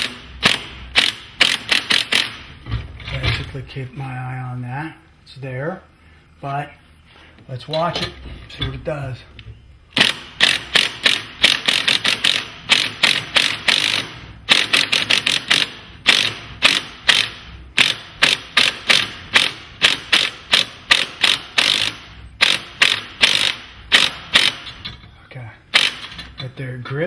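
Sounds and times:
ratchet pawl clicking: 10.0s - 24.8s, 25.8s - 26.1s.

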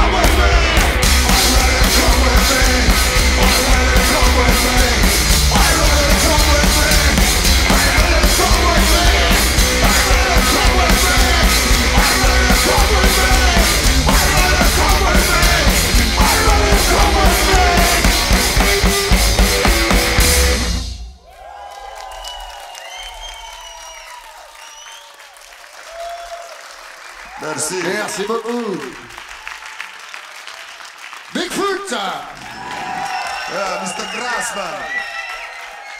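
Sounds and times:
fast drum beat: 0.0s - 20.9s
blues rock band playing: 0.0s - 21.1s.

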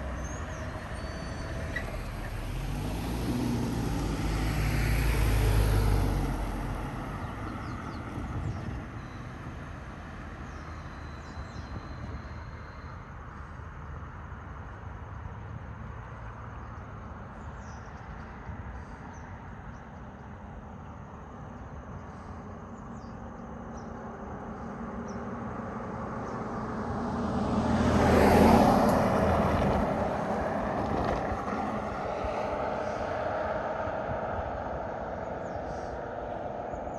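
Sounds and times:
car passing by: 0.0s - 13.6s, 22.0s - 36.9s
outdoor background: 0.0s - 36.9s.

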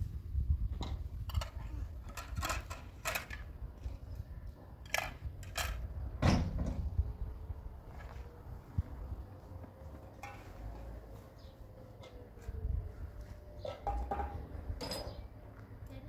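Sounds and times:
kitchenware clinking: 13.8s - 15.2s.

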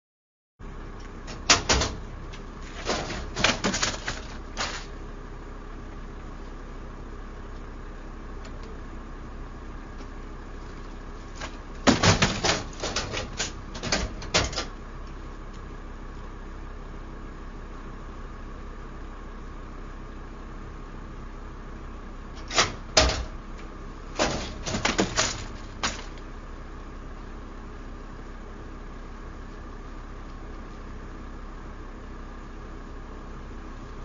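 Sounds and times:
steady low hum: 0.6s - 34.0s
stretcher metal clattering: 1.3s - 4.9s, 11.4s - 14.7s, 24.1s - 26.2s.

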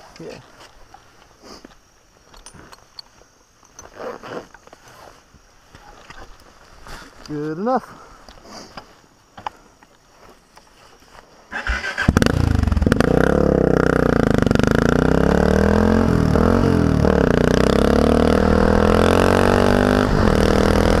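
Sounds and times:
motorcycle engine under load: 11.5s - 21.0s.

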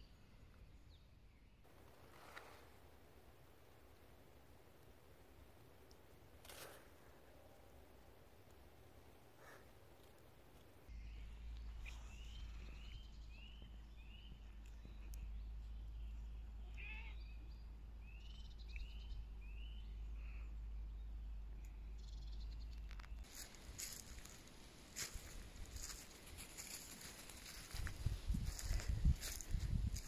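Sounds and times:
low steady rumble: 10.8s - 23.2s.

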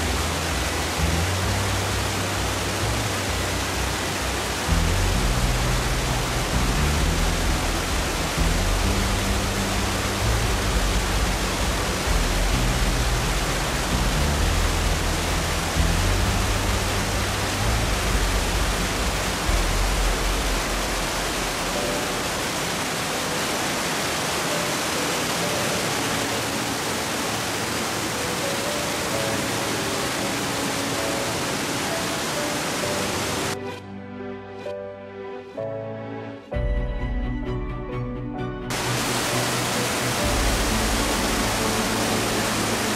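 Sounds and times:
waterfall rushing onto rocks: 0.0s - 33.6s, 38.7s - 42.9s
soft music: 0.0s - 42.9s.

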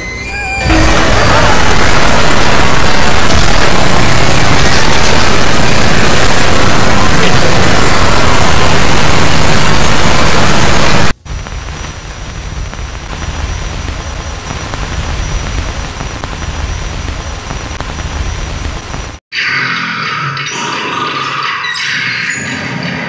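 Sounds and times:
music: 0.0s - 1.5s
faint high whine: 0.0s - 19.2s
loud static hiss: 0.3s - 19.2s
low rumble: 0.6s - 19.2s.

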